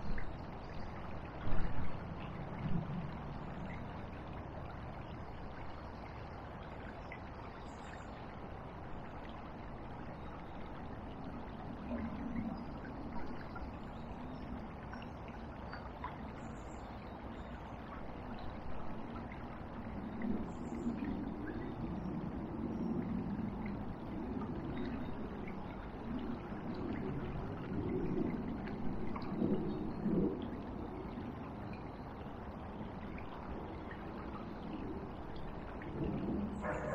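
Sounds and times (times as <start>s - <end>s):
river rushing: 36.6s - 36.9s.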